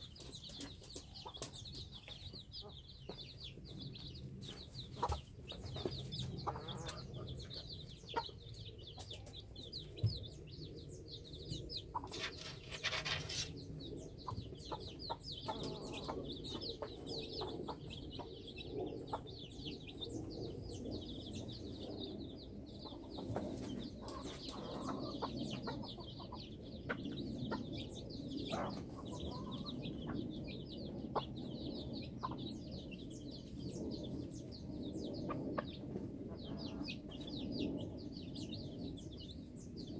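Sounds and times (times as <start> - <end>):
chicks peeping: 0.0 - 39.9
hen clucking: 4.8 - 9.3, 11.7 - 13.5, 14.2 - 19.3, 22.8 - 30.3.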